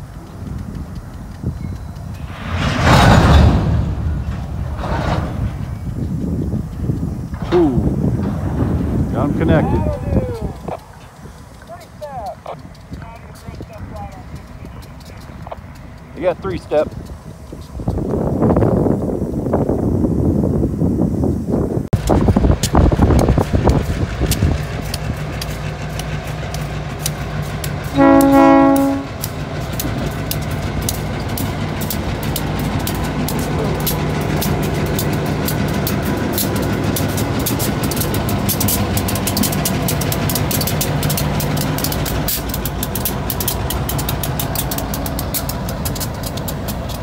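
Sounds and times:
wheels clicking over rail joints: 0.0s - 20.3s, 22.0s - 47.0s
diesel locomotive engines droning: 0.0s - 47.0s
train horn blast: 27.8s - 29.3s.

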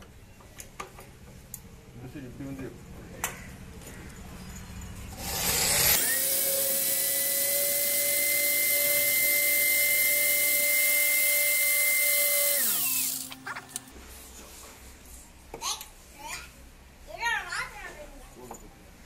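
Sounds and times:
electric drill whining: 5.1s - 13.9s.

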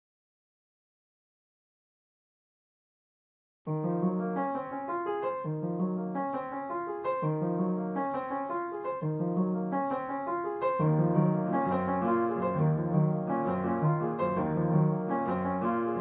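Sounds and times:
piano music: 3.7s - 16.0s.

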